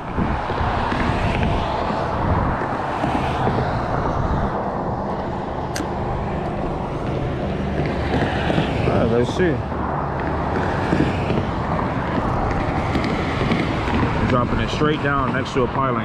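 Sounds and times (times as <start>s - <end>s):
low engine hum: 0.0s - 16.0s
road traffic noise: 0.0s - 16.0s
sharp click: 5.7s - 6.0s.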